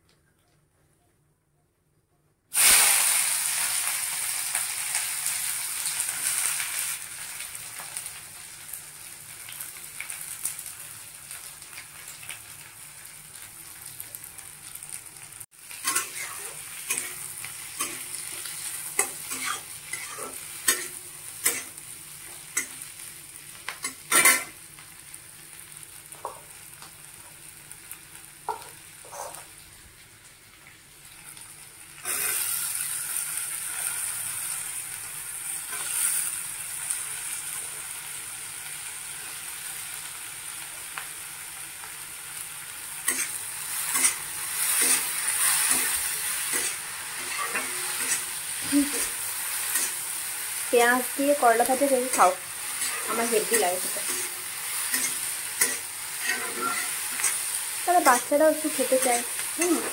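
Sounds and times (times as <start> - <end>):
food sizzling in hot oil: 2.5 - 59.9
spatula scraping a pan: 15.8 - 21.8, 23.8 - 24.5, 43.1 - 50.0, 52.1 - 59.9.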